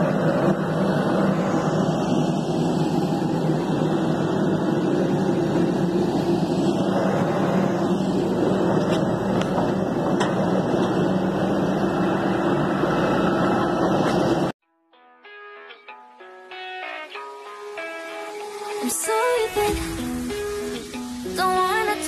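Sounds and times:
low hum: 0:00.0 - 0:14.5
airliner mechanical drone: 0:00.0 - 0:14.6.

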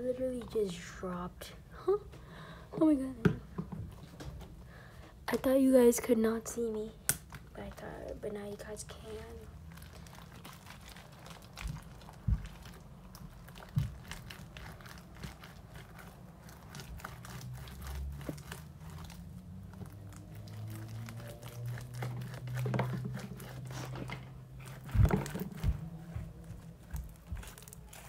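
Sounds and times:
slime squishing and crackling: 0:07.1 - 0:28.0.

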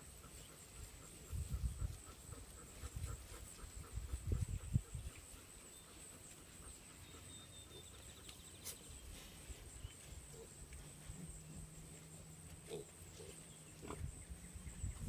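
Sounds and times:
pigs grunting: 0:12.6 - 0:14.2.

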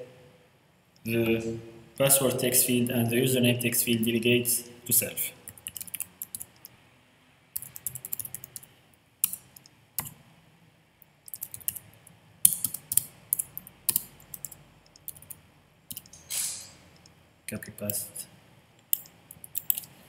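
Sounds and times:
typing on computer keyboard: 0:05.5 - 0:06.8, 0:07.6 - 0:10.1, 0:11.3 - 0:11.9, 0:12.5 - 0:16.2, 0:18.9 - 0:20.0.

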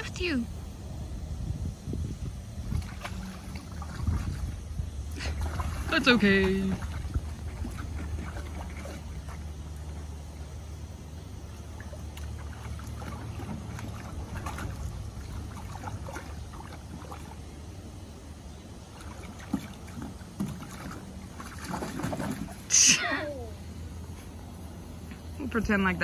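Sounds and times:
water splashing in pool: 0:02.6 - 0:23.5.

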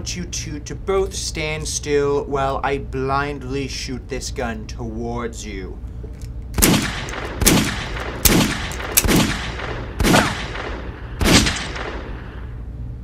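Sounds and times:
gunshots: 0:06.6 - 0:12.4.

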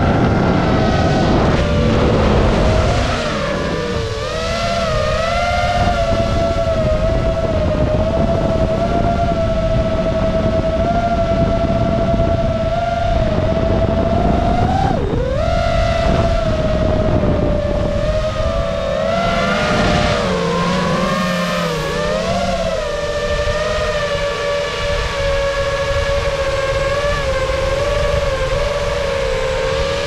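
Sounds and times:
drone motors whining: 0:00.0 - 0:30.0
rushing wind noise: 0:00.0 - 0:30.0.

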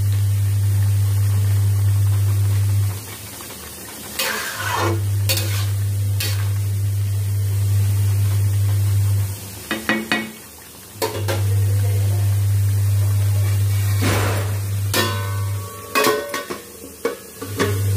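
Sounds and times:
metal spatula scraping pan: 0:04.2 - 0:06.4.

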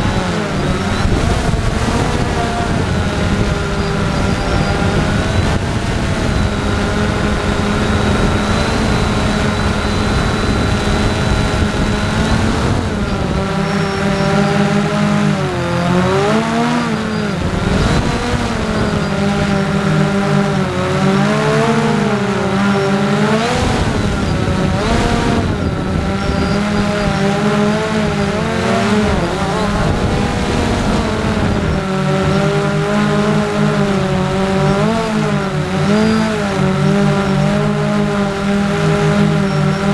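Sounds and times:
drone motors and propellers whining: 0:00.0 - 0:39.9
wind rushing over microphone: 0:00.0 - 0:39.9.

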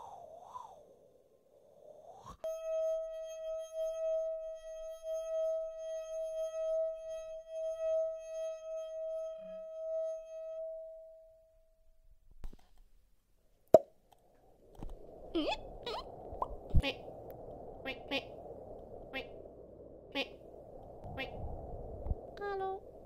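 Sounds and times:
sustained ringing tone: 0:02.4 - 0:11.9.

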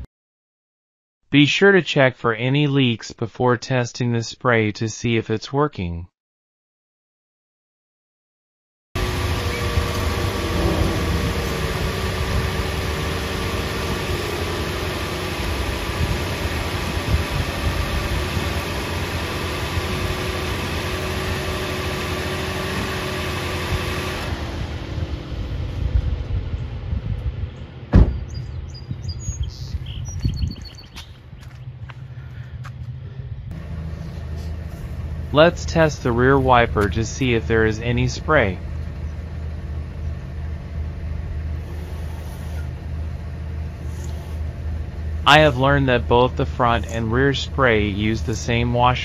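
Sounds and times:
car engine humming: 0:09.0 - 0:49.0
sharp knock: 0:27.9 - 0:28.3.

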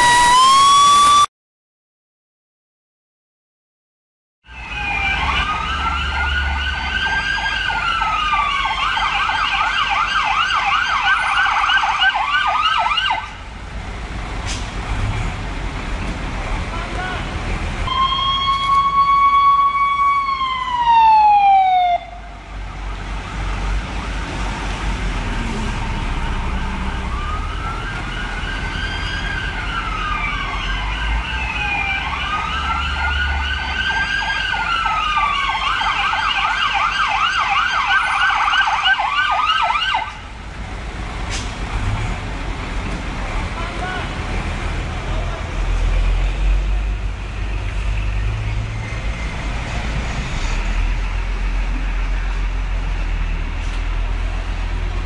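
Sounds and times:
electronic siren wail and yelp: 0:00.0 - 0:01.3, 0:04.6 - 0:13.4, 0:17.9 - 0:22.4, 0:26.2 - 0:40.2
siren tone sliding down: 0:00.0 - 0:01.3, 0:04.5 - 0:13.4, 0:17.9 - 0:23.8, 0:25.4 - 0:40.2.

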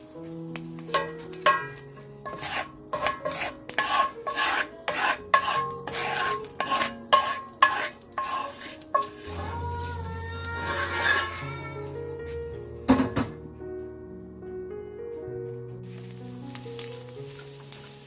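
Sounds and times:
spatula scraping skillet: 0:00.9 - 0:11.8.

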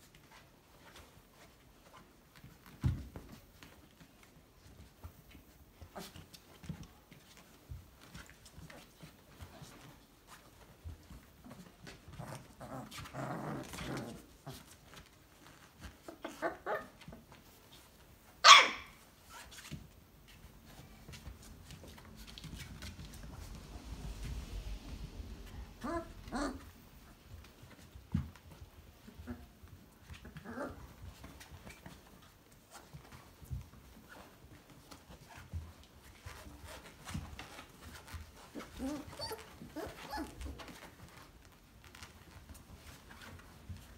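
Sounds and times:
sharp puppy bark: 0:18.4 - 0:19.0
puppies yipping and grumbling: 0:25.8 - 0:26.7, 0:38.6 - 0:40.8.

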